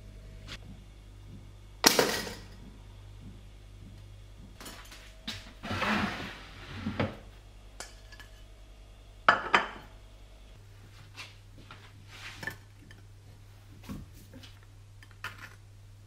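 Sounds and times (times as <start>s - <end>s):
cutting board scraping on worktop: 5.6s - 7.2s.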